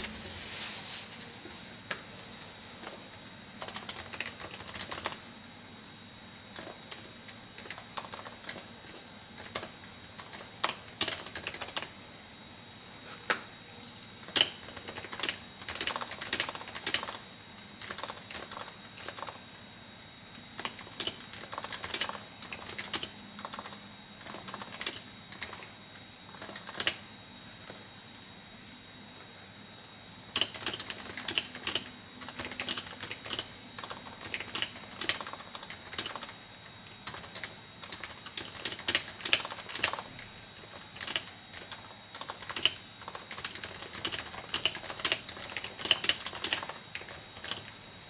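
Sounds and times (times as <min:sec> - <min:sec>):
keyboard typing: 0:03.6 - 0:05.2, 0:06.6 - 0:11.9, 0:13.8 - 0:17.2, 0:17.8 - 0:19.4, 0:20.6 - 0:25.7, 0:26.3 - 0:27.0, 0:29.8 - 0:36.4, 0:37.0 - 0:47.7.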